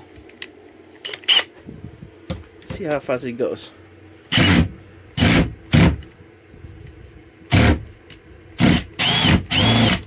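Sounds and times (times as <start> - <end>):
cordless drill running: 4.3 - 5.8, 8.6 - 10.0.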